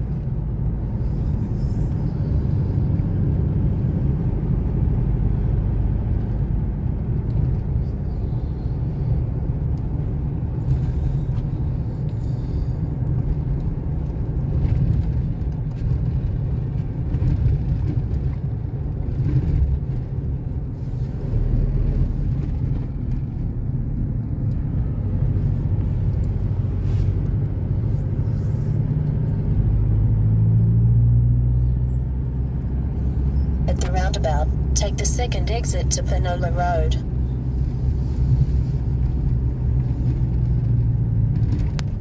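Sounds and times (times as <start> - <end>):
deep drone: 0.0 - 7.0, 32.8 - 38.5
car engine and road rumble: 0.0 - 42.0.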